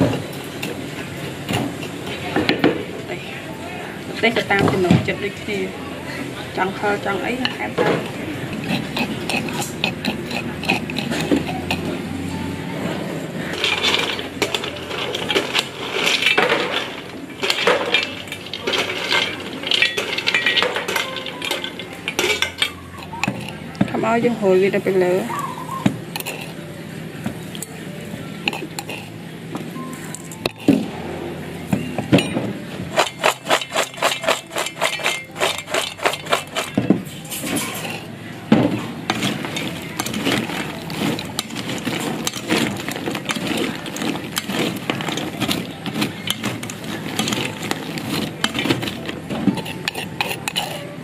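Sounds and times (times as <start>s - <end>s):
fried pasta rattling in metal pot: 6.7s - 12.1s, 13.4s - 26.6s, 28.4s - 29.2s, 29.9s - 30.9s, 32.1s - 38.1s, 39.0s - 51.0s.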